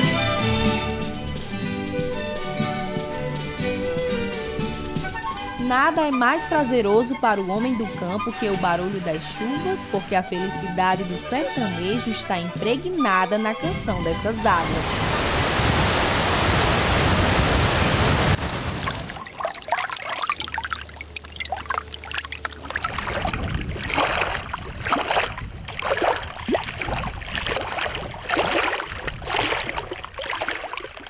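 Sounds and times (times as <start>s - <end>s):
water splashing and lapping: 5.0s - 12.4s, 13.6s - 31.0s
water rushing over rocks: 14.4s - 31.0s.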